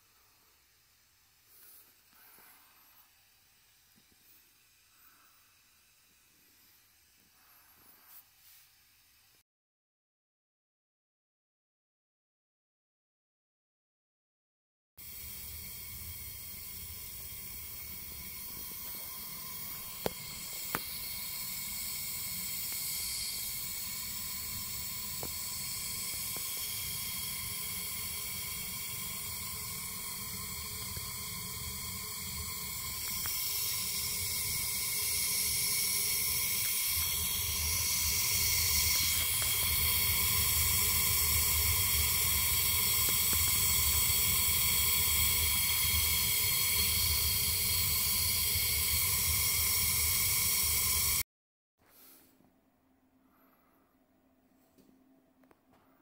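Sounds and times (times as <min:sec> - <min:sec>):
gas burner hissing: 0:15.0 - 0:51.2.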